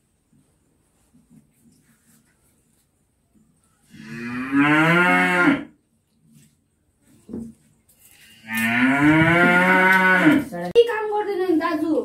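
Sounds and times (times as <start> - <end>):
cow mooing: 3.9 - 5.7, 8.4 - 10.5.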